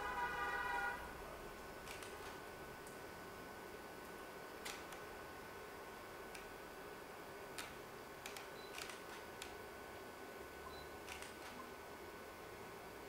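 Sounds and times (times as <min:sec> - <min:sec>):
low steady hiss: 0:00.0 - 0:08.7
sharp clicks: 0:01.8 - 0:03.0, 0:04.6 - 0:05.0, 0:07.6 - 0:09.6, 0:11.1 - 0:11.6.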